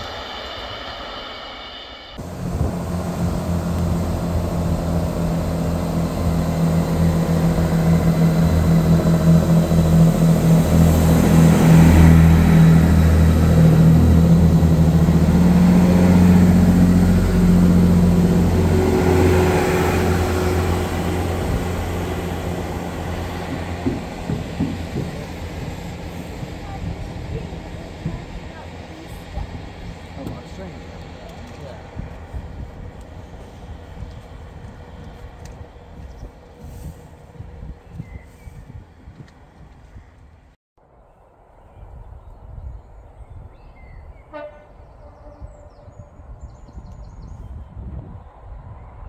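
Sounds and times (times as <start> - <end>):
diesel train passing: 0.0 - 40.6, 41.3 - 49.0.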